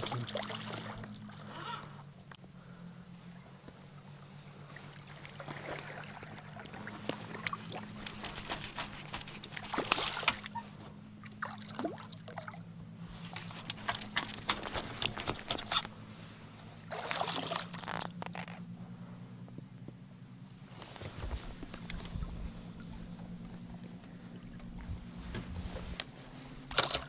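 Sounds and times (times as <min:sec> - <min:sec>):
water splashing against boat: 0:00.0 - 0:01.6, 0:04.0 - 0:16.0, 0:16.7 - 0:18.7
steady low hum: 0:00.0 - 0:27.0.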